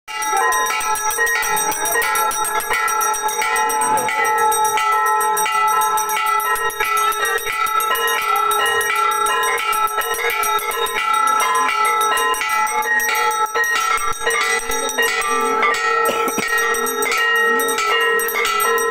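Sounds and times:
temple bells ringing rapidly: 0.1 - 18.9.

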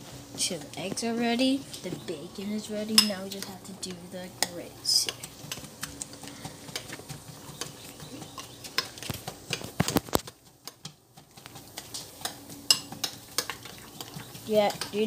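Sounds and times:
metal utensil stirring in glass bowl: 11.8 - 15.0.

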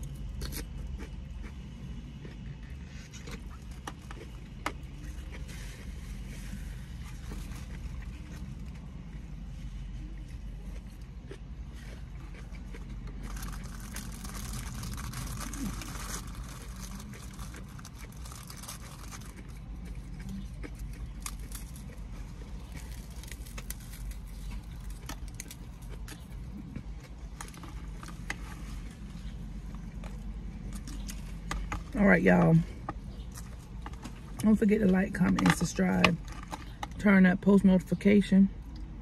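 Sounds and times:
steady low hum: 0.0 - 39.0
plastic packaging rustling: 13.2 - 19.4.

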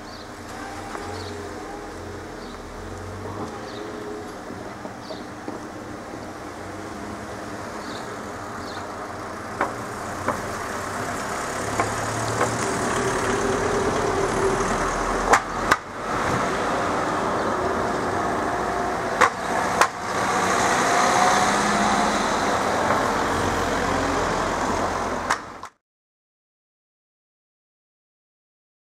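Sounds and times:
car engines running: 0.0 - 25.7
wheels knocking over rails: 11.6 - 12.6.

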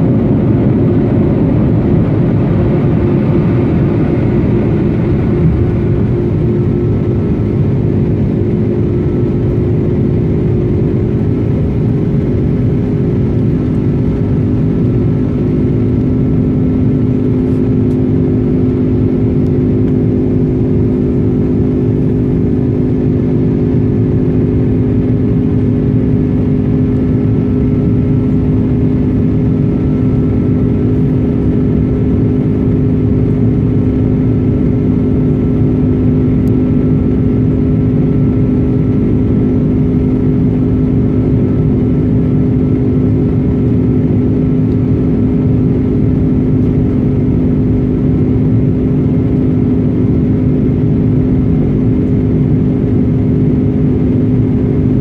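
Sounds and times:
deep hum: 0.0 - 55.0
jet engines droning in cabin: 0.0 - 55.0
low rumble: 0.0 - 55.0.

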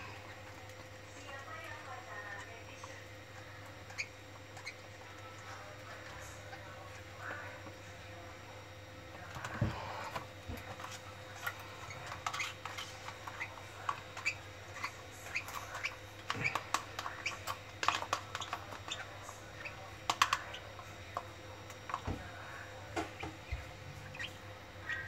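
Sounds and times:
bird chicks chirping and squawking: 2.2 - 6.7, 10.8 - 20.9, 23.1 - 25.0.

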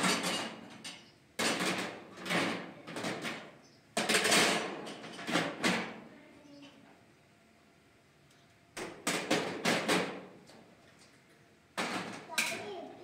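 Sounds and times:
metal utensils clattering on pot: 0.0 - 3.4, 11.8 - 12.7.

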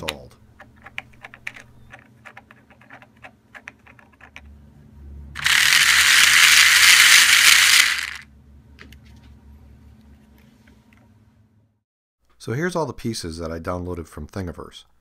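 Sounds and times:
small motor rattling: 5.4 - 8.2.

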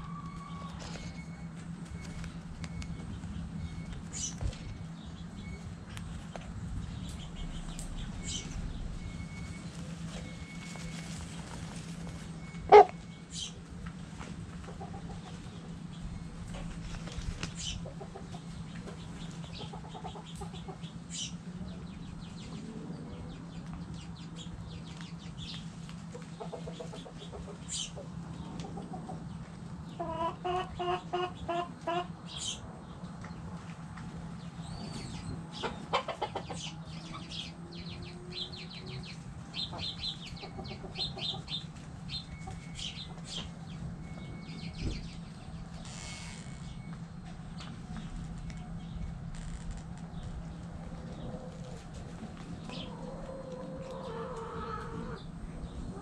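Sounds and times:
steady low hum: 0.0 - 56.0
hens clucking: 6.2 - 21.8, 25.8 - 32.6, 34.9 - 45.9, 50.2 - 56.0.

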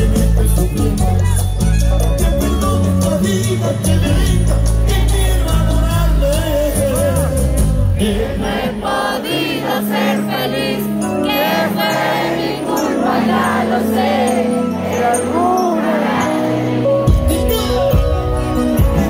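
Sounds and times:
steady bass: 0.0 - 8.9.

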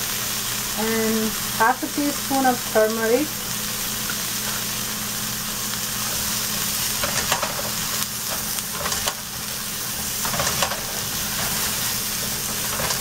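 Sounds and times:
vegetables sizzling in oil: 0.0 - 13.0
spatula scraping a pan: 6.1 - 9.4, 10.0 - 13.0.

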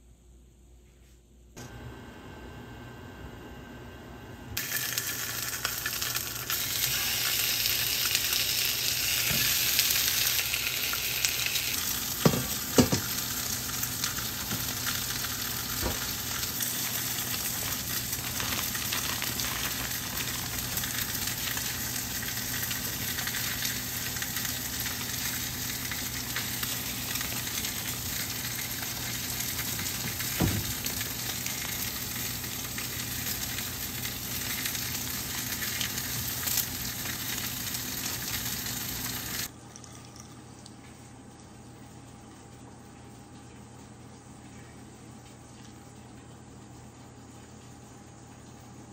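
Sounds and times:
food sizzling in a frying pan: 4.6 - 39.5
utensil knocking on pan: 12.2 - 13.1.

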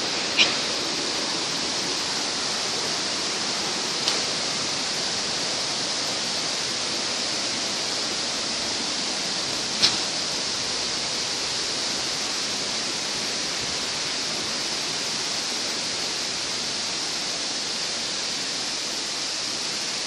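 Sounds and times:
stream flowing over rocks: 0.0 - 20.0
sharp click: 9.8 - 10.1.

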